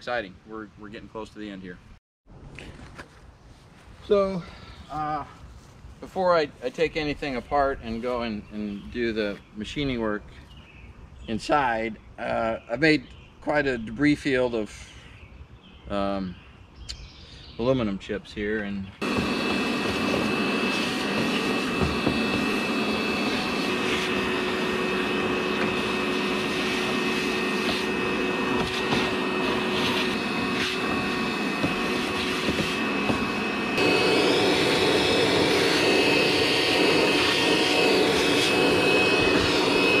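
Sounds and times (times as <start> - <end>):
shop vacuum whining: 19.0 - 40.0.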